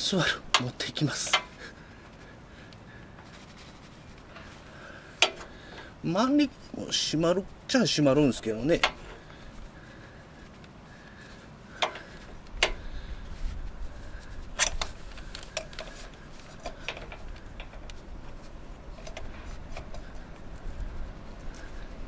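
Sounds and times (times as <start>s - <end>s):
metal clicks and taps: 5.2s - 5.5s, 11.8s - 12.8s.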